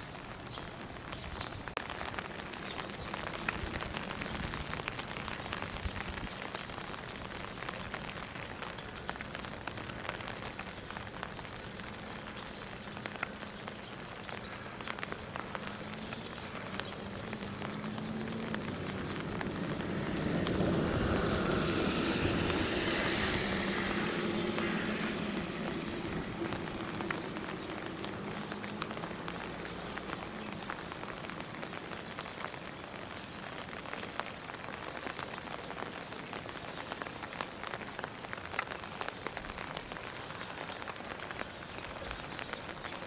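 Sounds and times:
light rain pattering: 0.0 - 43.0
raindrops ticking: 0.0 - 43.0
passing engine rushing: 16.8 - 30.7
low distant hum: 17.8 - 30.4.

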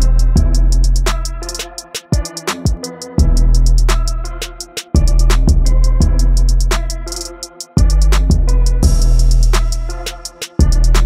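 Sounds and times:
drum machine beat with hi-hats: 0.0 - 11.0
deep sustained bass: 7.9 - 9.6.

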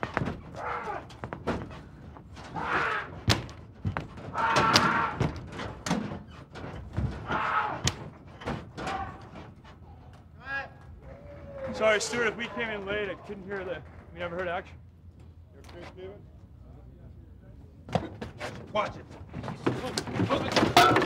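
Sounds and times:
bodies thumping hard surfaces: 0.0 - 9.1.

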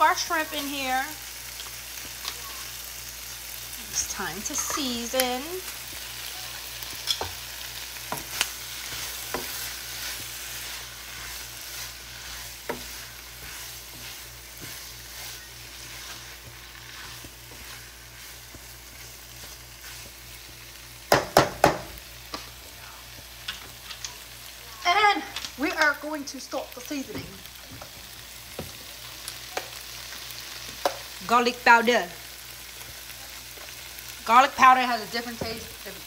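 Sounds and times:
food sizzling in a frying pan: 0.0 - 36.0
spatula scraping a pan: 3.9 - 6.1, 6.8 - 20.6.

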